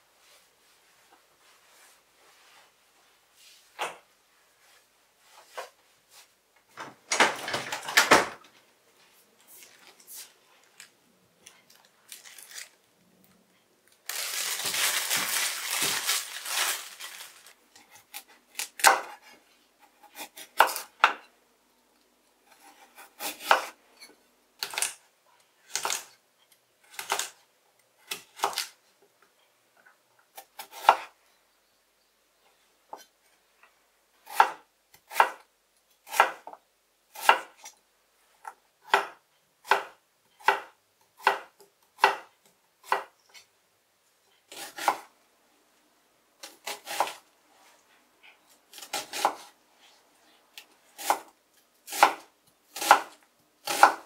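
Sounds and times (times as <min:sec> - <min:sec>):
plastic bag crinkling: 0:11.7 - 0:12.9, 0:13.9 - 0:17.6
knife chopping on wooden board: 0:51.9 - 0:52.2, 0:52.8 - 0:54.0.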